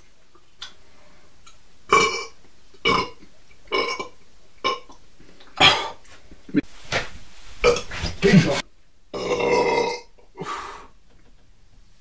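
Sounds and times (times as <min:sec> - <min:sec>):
men belching: 0:09.2 - 0:10.1.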